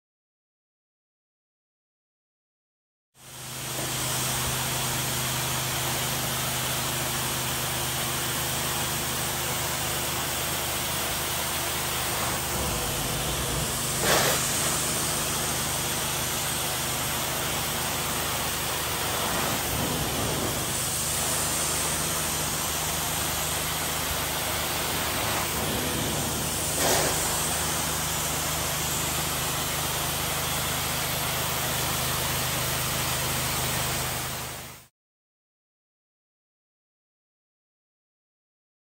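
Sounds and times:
rushing hiss of suction: 11.2s - 30.5s
low machine hum: 12.0s - 29.2s.

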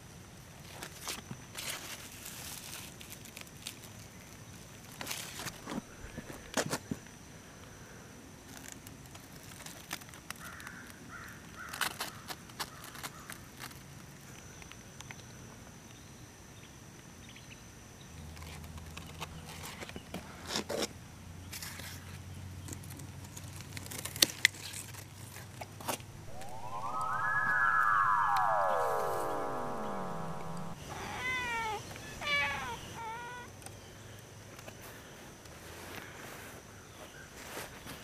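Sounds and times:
low hum: 26.1s - 30.8s
faint high-pitched tone: 26.2s - 30.8s.

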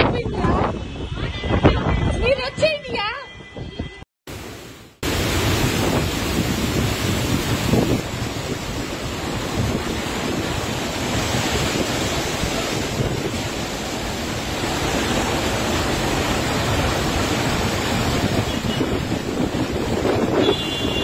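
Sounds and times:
floodwater rushing: 4.3s - 21.0s.

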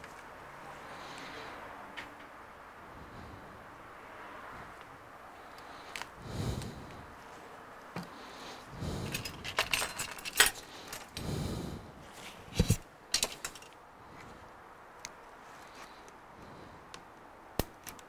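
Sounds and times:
hand tools rattling: 8.9s - 11.2s, 12.6s - 13.8s
soft rustles: 12.0s - 14.5s.

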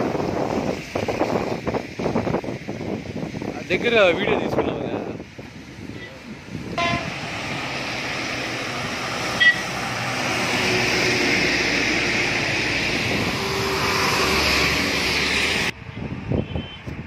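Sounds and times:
bus passing: 0.0s - 3.8s, 5.3s - 17.0s
cars passing on wet road: 0.0s - 17.0s
car horn beep: 6.8s - 7.2s, 9.4s - 9.7s, 16.4s - 16.9s.

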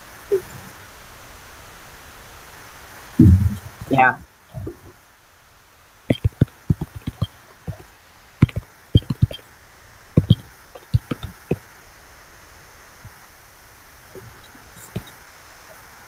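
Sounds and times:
short knocks: 3.2s - 3.9s, 6.1s - 7.8s, 8.4s - 9.4s, 10.2s - 11.6s.

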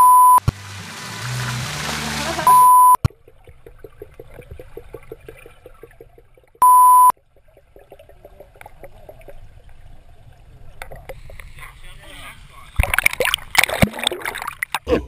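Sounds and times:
music: 0.6s - 2.5s
loud electronic beeps: 2.4s - 3.0s.

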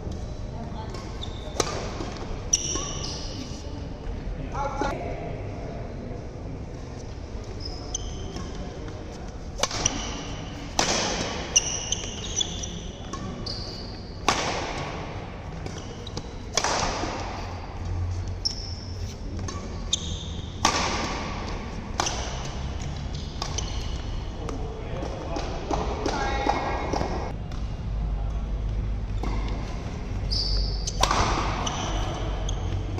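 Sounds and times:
sports shoes squeaking on court: 0.8s - 3.6s, 7.4s - 8.8s, 9.6s - 14.3s, 15.6s - 16.6s, 17.4s - 20.6s, 22.0s - 24.7s, 29.1s - 32.9s
racket hitting shuttlecock: 0.9s - 3.1s, 9.6s - 13.4s, 14.0s - 17.7s, 19.4s - 27.7s, 30.6s - 32.9s.

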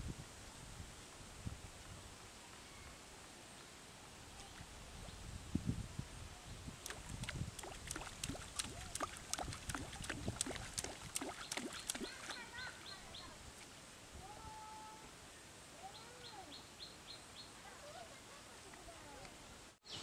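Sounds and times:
fish splashing in water: 6.8s - 12.4s.

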